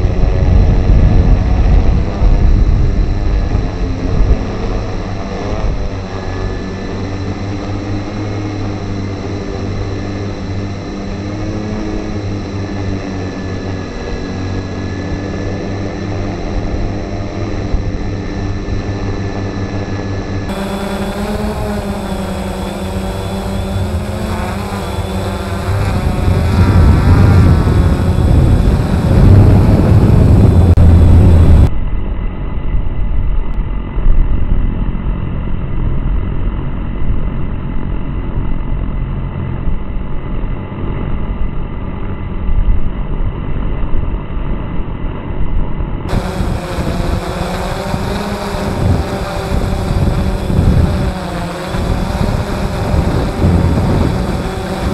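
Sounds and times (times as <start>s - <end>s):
drone motors humming: 0.0s - 31.7s, 46.0s - 54.9s
wind rumble: 0.0s - 54.9s.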